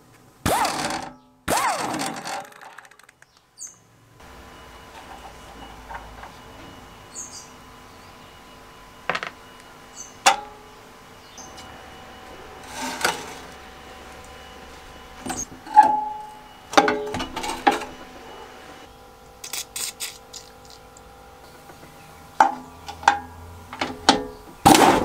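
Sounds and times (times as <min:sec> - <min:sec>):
faint bird chirps: 0:03.2 - 0:03.9, 0:06.6 - 0:08.7, 0:09.4 - 0:10.2, 0:11.1 - 0:11.7
scraping rustle: 0:12.6 - 0:13.7
small metal parts handled: 0:19.4 - 0:21.1.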